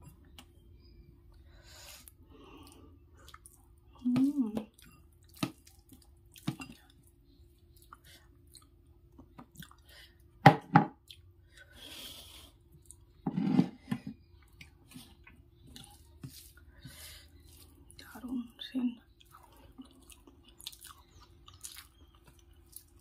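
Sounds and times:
person chewing: 2.0 - 10.2, 11.0 - 13.2, 14.3 - 18.2, 19.1 - 23.0
fingers squishing food: 2.5 - 9.9, 14.2 - 23.0.

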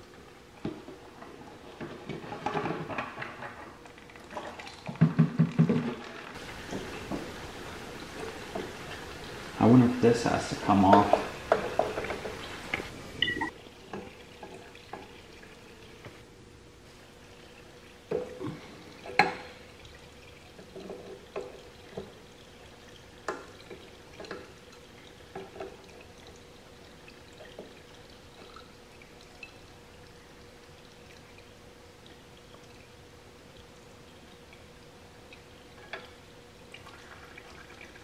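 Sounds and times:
oil dripping into container: 17.2 - 33.0.

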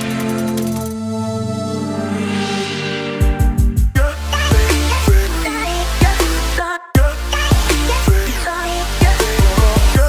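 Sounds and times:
electronic music with bass kicks: 3.2 - 10.0.

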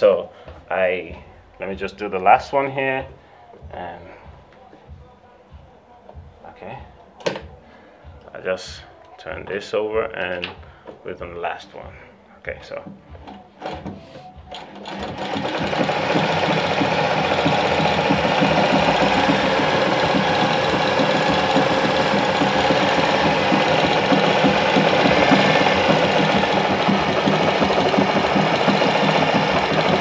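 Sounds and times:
sewing machine stitching: 13.3 - 30.0.

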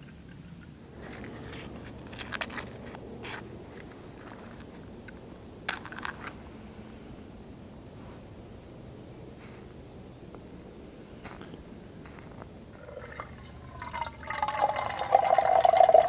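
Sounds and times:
wrapper crinkling and tearing: 1.1 - 3.4.

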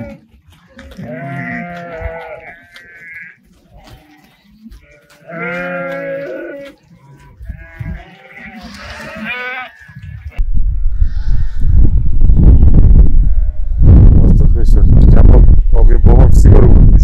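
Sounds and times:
sheep bleating: 0.0 - 10.4.

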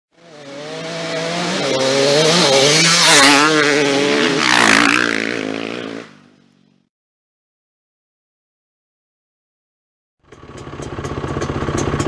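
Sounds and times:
motorcycle engine revving: 0.1 - 6.9, 10.2 - 12.0.

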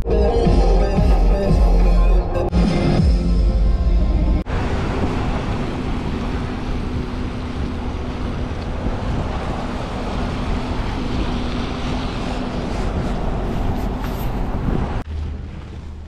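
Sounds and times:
tyres on wet road: 4.4 - 16.0
wind on microphone: 4.6 - 16.0.

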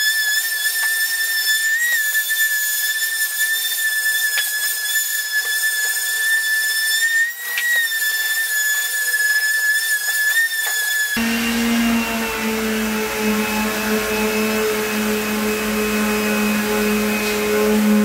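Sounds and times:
orbital sander whining: 11.2 - 18.0.

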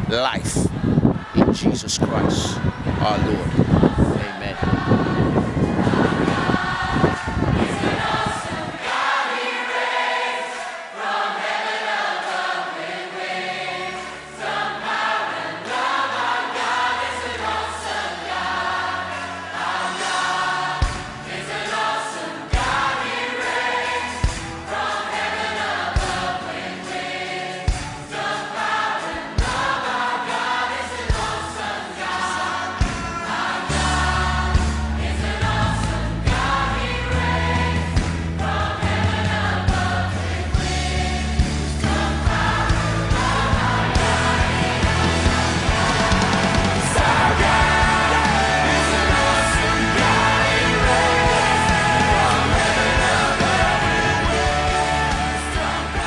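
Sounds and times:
choir singing over backing track: 0.0 - 56.0
bass line: 33.7 - 56.0.

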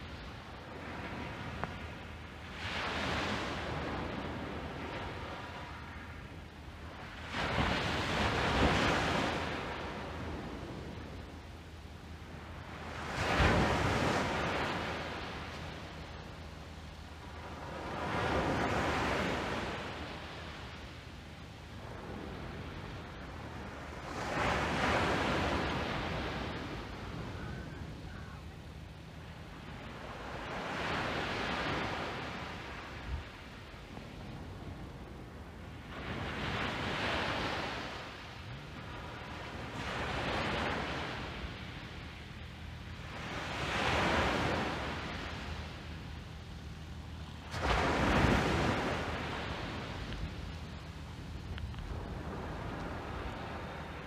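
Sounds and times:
small waves breaking: 0.0 - 11.4, 12.1 - 54.0
low wind rumble: 0.0 - 54.0.

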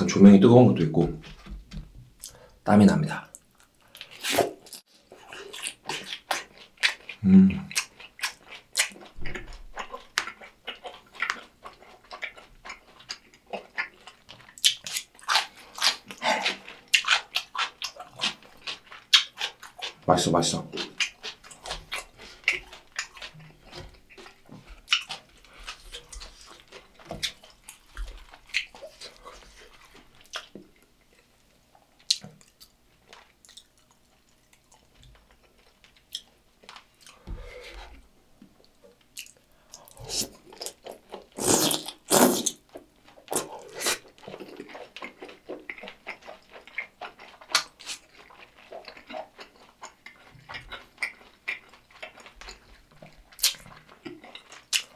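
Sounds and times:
chewing and biting: 3.5 - 20.0, 20.6 - 37.2, 38.9 - 54.9
wet mouth sounds: 39.2 - 42.7, 43.3 - 44.5, 53.4 - 54.9.

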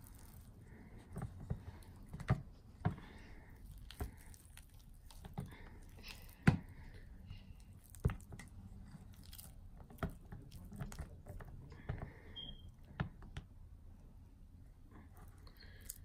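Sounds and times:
cream squelching: 0.0 - 12.5.

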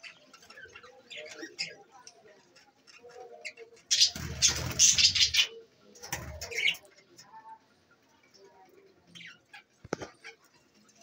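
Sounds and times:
budgerigars chirping: 3.4 - 5.6.

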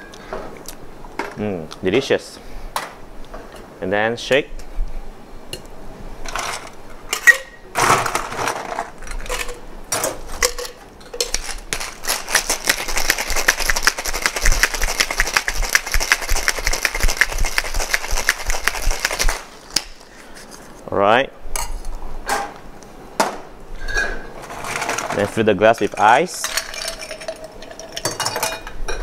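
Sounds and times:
ice rattling in cocktail shaker: 10.4 - 19.5, 24.6 - 28.6
shaker knocks and clatters: 10.4 - 19.5.

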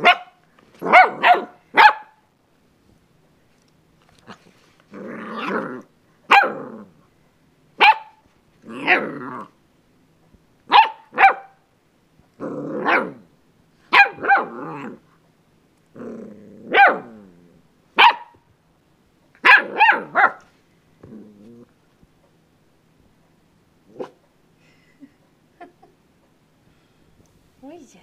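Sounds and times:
puppy yapping: 0.0 - 2.2, 6.3 - 6.7, 7.8 - 9.1, 10.7 - 11.6, 13.9 - 14.9, 16.7 - 17.1, 18.0 - 18.4, 19.4 - 20.4
puppy growling: 4.2 - 7.0, 8.6 - 9.6, 12.3 - 13.3, 14.1 - 15.1, 15.9 - 17.7, 21.0 - 21.8.

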